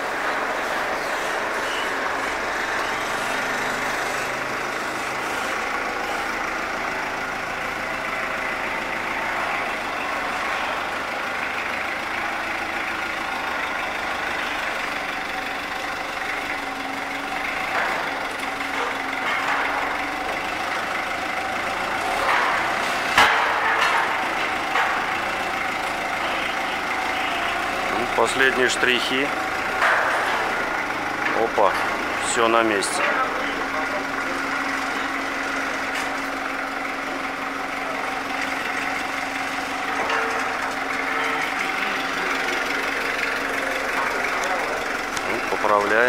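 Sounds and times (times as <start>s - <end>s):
forklift engine running: 0.0s - 46.0s
metal clanks: 16.6s - 27.9s, 28.5s - 46.0s.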